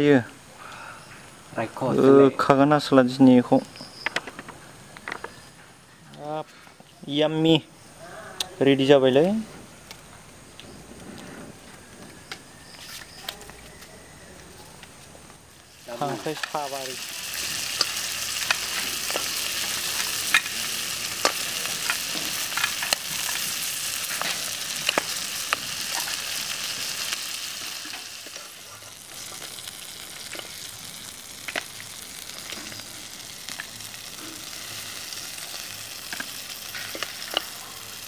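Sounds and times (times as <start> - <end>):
food sizzling in hot oil: 15.4 - 38.0
oil crackling pops: 15.8 - 38.0.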